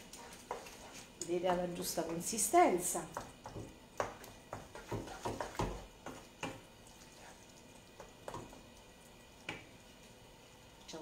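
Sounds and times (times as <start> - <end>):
wooden spoon stirring millet: 0.0 - 8.7.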